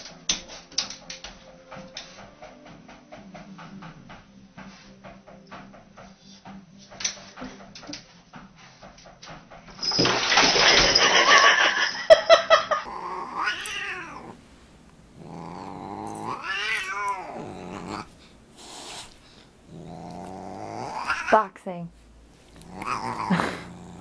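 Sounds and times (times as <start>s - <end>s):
cat yowling: 12.8s - 14.4s, 15.2s - 18.1s, 19.8s - 21.4s, 22.6s - 23.7s.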